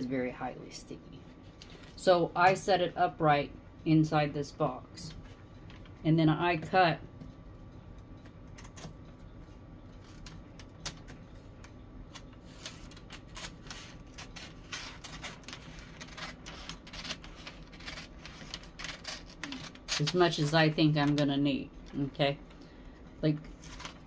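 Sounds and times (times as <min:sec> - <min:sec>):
paper crackle: 0:09.9 - 0:21.2, 0:23.5 - 0:24.0
scissors snipping paper: 0:12.1 - 0:21.2.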